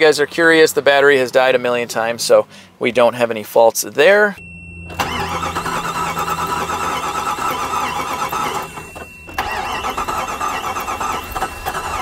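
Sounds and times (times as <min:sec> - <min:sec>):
car engine cranking on starter: 0:04.8 - 0:12.0.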